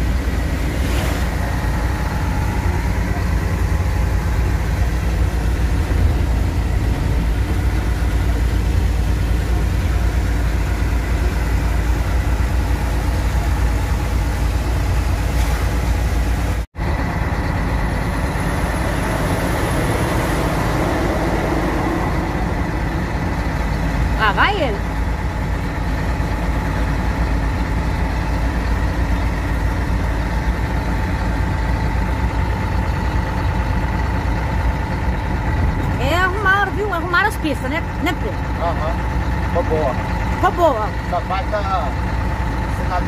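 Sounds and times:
road noise: 0.0 - 43.0
truck engine drone: 0.0 - 43.0.

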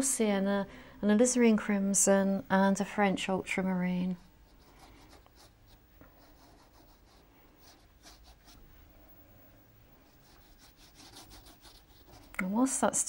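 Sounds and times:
wet brush stroking paper: 4.4 - 8.7, 10.0 - 12.8.

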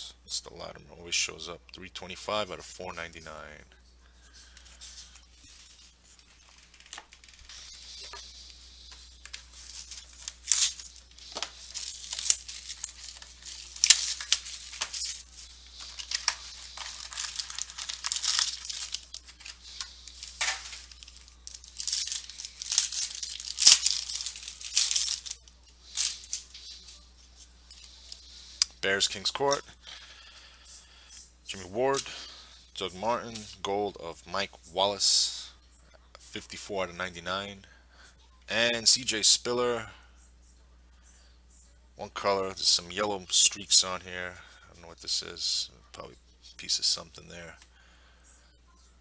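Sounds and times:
wrapper crinkling and tearing: 8.9 - 27.0.

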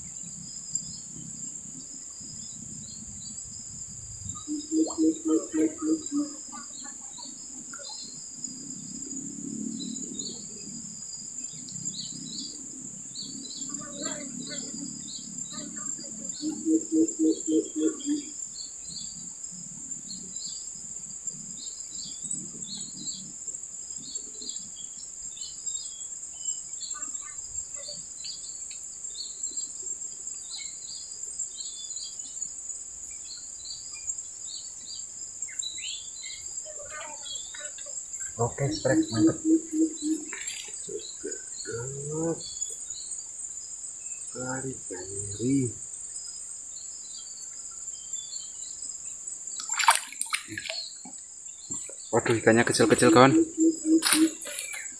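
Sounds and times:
insects droning: 0.0 - 54.9
low pulsing call: 4.3 - 7.0, 38.4 - 42.5, 52.1 - 54.6.

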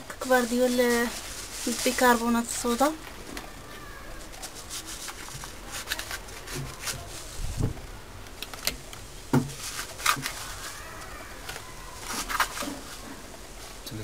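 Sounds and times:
plastic bag crinkling: 0.2 - 8.6, 9.6 - 13.3.

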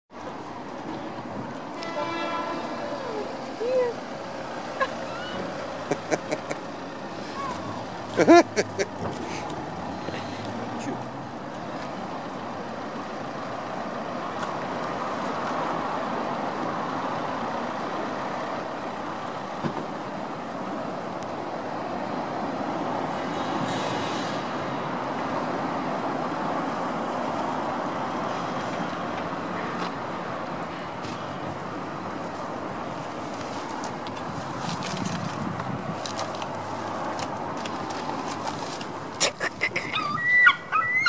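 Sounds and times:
distant road traffic: 0.1 - 41.0.

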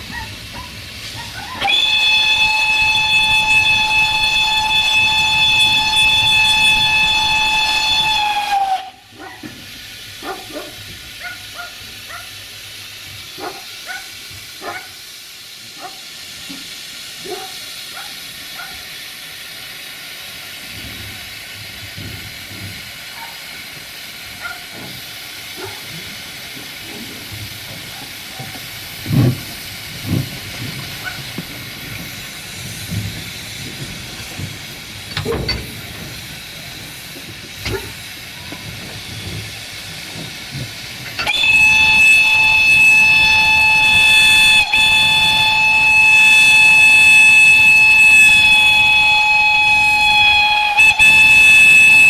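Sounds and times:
steam locomotive hissing: 0.0 - 52.0
steam whistle blast: 1.2 - 9.2, 41.2 - 52.0
locomotive chuffs and knocks: 20.8 - 23.0, 26.0 - 43.5.

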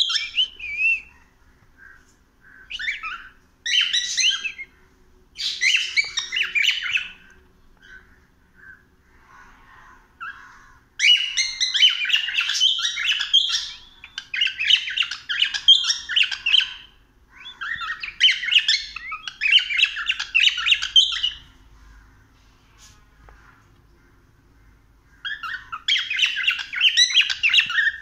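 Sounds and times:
cockatiel chirping: 0.0 - 1.2, 2.7 - 4.7, 5.4 - 7.2, 11.0 - 21.5, 25.3 - 28.0.

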